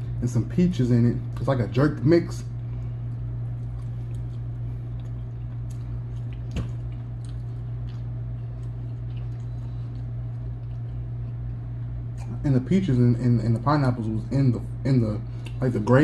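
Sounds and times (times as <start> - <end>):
steady low hum: 0.0 - 16.0
man chewing food: 2.5 - 12.4, 15.3 - 16.0.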